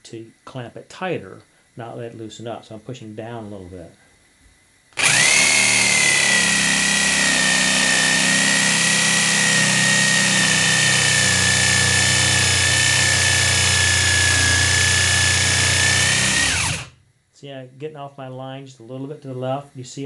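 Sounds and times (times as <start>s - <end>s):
electric jigsaw cutting wood: 5.0s - 17.0s.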